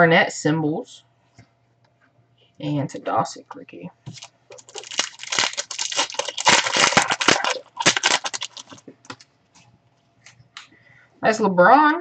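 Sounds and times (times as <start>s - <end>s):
plastic wrapper crinkling and tearing: 4.1s - 9.3s.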